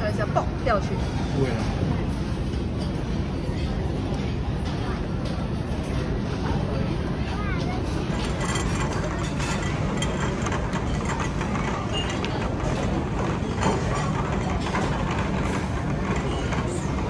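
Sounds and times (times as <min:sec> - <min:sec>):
plates and cutlery rattling: 0:07.8 - 0:17.0
trolley rolling on hard floor: 0:08.0 - 0:17.0.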